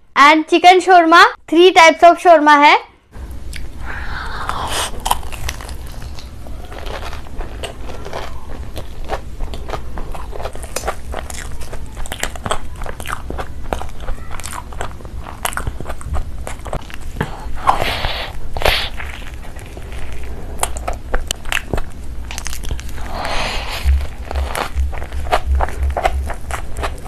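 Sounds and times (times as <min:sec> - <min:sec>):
crunching bites: 0:04.5 - 0:17.8, 0:18.6 - 0:27.0
wet chewing and smacking: 0:04.9 - 0:17.5, 0:18.6 - 0:27.0.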